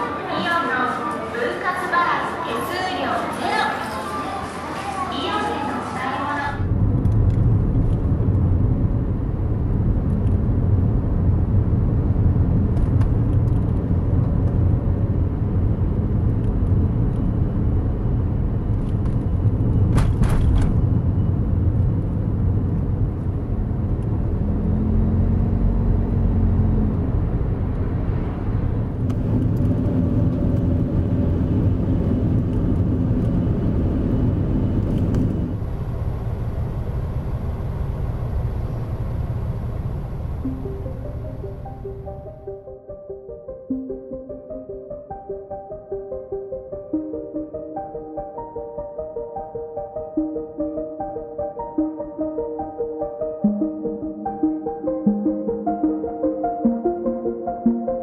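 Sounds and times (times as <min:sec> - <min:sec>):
car road and engine rumble: 0:06.0 - 0:42.3.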